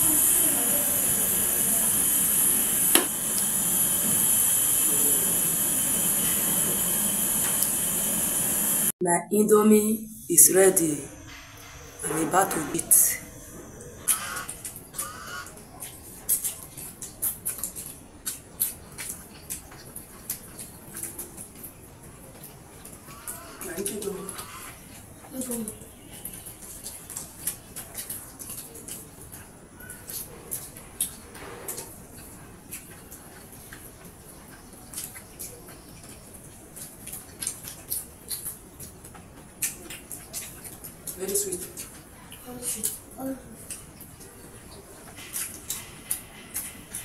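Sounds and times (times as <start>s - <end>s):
gas burner hiss: 0.0s - 8.9s.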